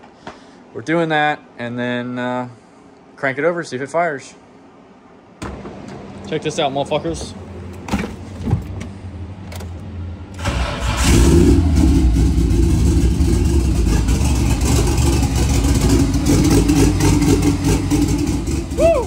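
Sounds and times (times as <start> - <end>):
car engine starting and idling: 5.4 - 19.0.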